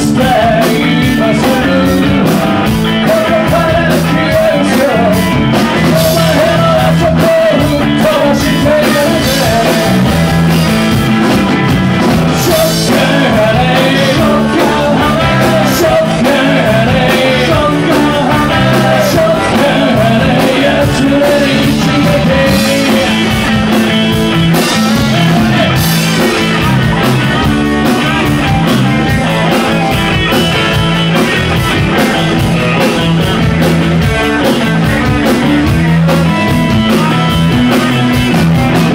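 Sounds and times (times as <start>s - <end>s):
person singing: 0.0s - 10.3s, 12.3s - 27.0s
drum kit: 0.0s - 38.9s
electric guitars: 0.0s - 38.9s.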